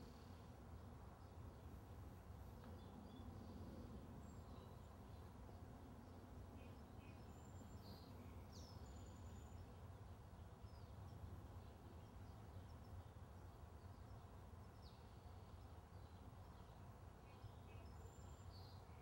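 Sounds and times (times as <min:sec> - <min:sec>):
faint low outdoor rumble: 0:00.0 - 0:19.0
faint bird chirps: 0:06.0 - 0:19.0.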